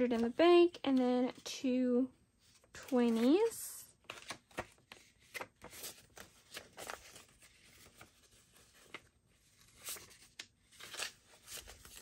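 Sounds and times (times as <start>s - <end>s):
banknotes rustling: 2.6s - 12.0s.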